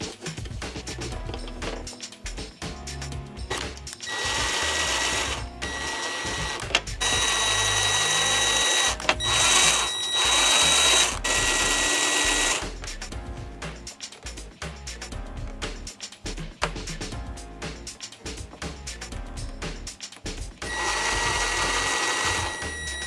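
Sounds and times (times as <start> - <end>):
background music: 0.0 - 23.0
cordless drill whining: 4.1 - 12.6, 20.6 - 23.0.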